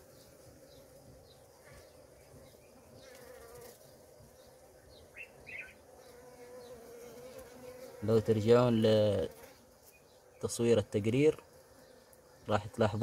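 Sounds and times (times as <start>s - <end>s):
bees buzzing in a hive: 0.0s - 13.0s.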